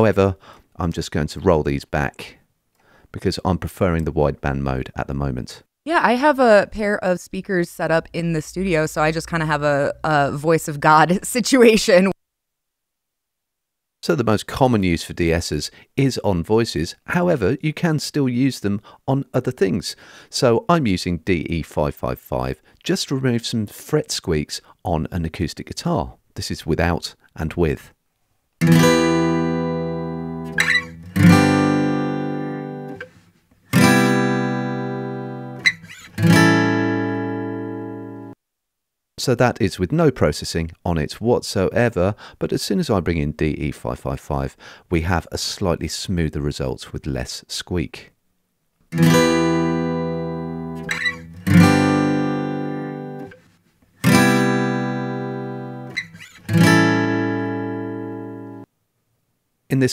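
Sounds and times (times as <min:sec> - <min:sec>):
acoustic guitar strumming: 0:28.6 - 0:38.4, 0:49.0 - 0:53.4, 0:54.0 - 0:58.7
guitar fret squeaks: 0:30.5 - 0:31.3, 0:35.6 - 0:36.2, 0:50.8 - 0:51.6, 0:55.9 - 0:56.6.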